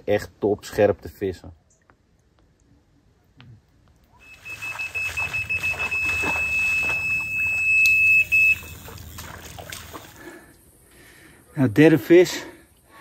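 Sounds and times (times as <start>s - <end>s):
rapidly pulsing high beep: 4.2s - 8.8s.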